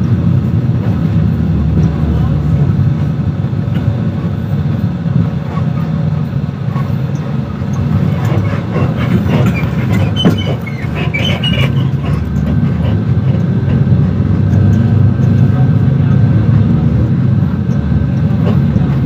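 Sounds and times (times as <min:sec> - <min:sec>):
road noise: 0:00.0 - 0:19.0
vehicle engine rumble: 0:00.0 - 0:19.0
short high squeaks: 0:09.4 - 0:12.4.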